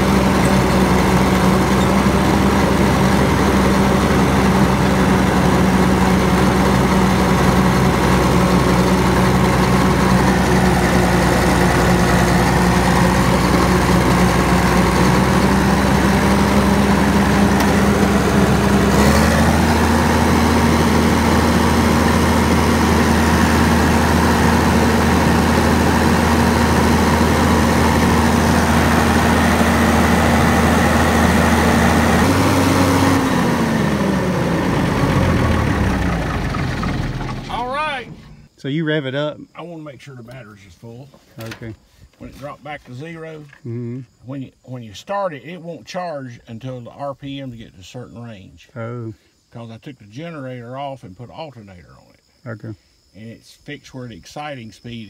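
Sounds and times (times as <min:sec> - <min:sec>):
diesel engine idling: 0:00.0 - 0:38.6.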